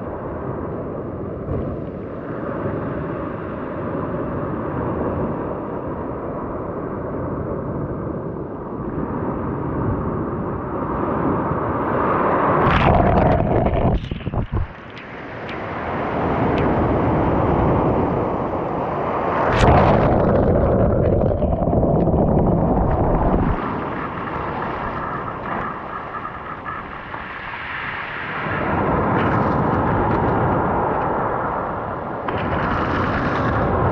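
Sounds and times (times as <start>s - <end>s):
waves washing over pebbles: 12.5s - 30.6s.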